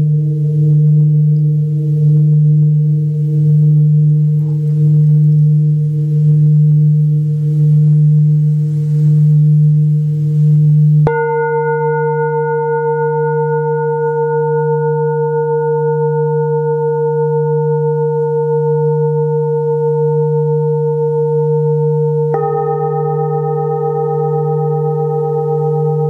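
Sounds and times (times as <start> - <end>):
deep hum of large bowl: 0.0 - 26.0
singing bowl struck and ringing: 0.0 - 26.0
second singing bowl struck: 11.0 - 16.6.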